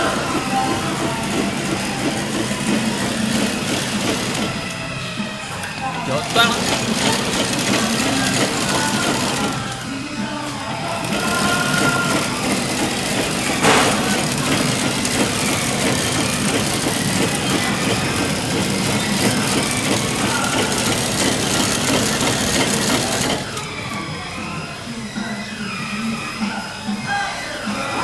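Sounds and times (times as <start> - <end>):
packing machine clatter and hum: 0.0 - 26.9
sharp knock: 13.6 - 14.3.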